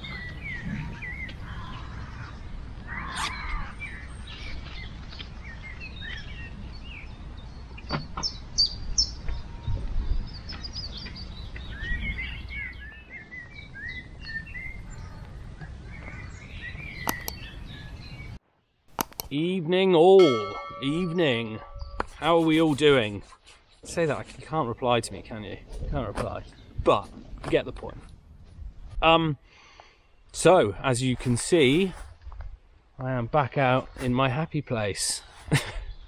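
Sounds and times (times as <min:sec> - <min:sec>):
songbirds chirping and singing: 0:00.0 - 0:18.4, 0:20.0 - 0:23.1
sharp clicks: 0:17.0 - 0:17.4, 0:18.9 - 0:19.4.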